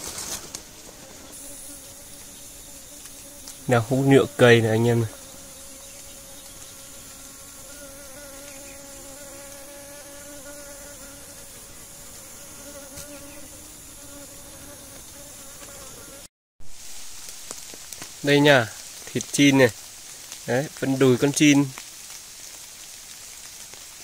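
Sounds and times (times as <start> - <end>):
hornet wings buzzing: 0.0 - 16.3
faint high insect chorus: 0.3 - 16.2.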